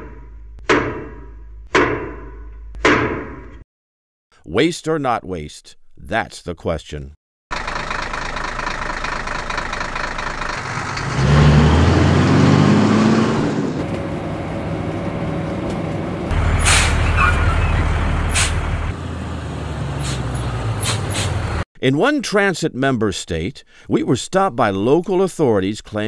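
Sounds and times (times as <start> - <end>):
truck engine revving: 7.5 - 21.6
truck air brakes hissing: 16.4 - 18.9, 19.8 - 21.6.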